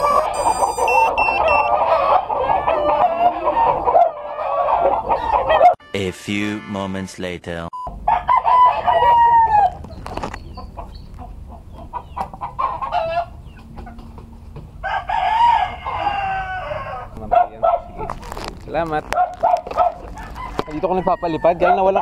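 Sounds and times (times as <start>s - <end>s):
chickens clucking: 0.0s - 5.8s, 8.1s - 14.8s, 15.6s - 18.3s
rooster crowing: 0.0s - 5.8s, 8.0s - 9.8s, 12.6s - 13.4s, 14.8s - 17.2s, 19.9s - 22.0s.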